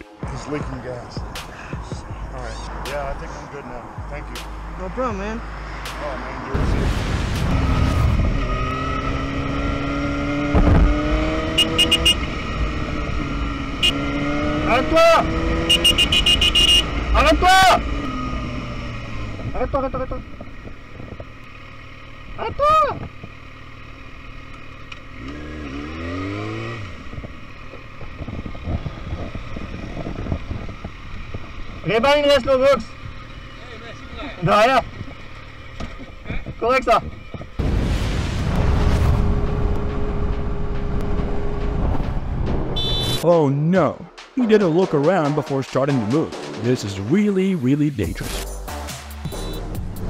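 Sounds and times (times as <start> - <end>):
explosion-like rumble: 6.5 - 8.4, 37.6 - 40.4
motorcycle engine running: 7.9 - 37.6, 39.2 - 43.2
irregular knocks and clatter: 34.9 - 37.6.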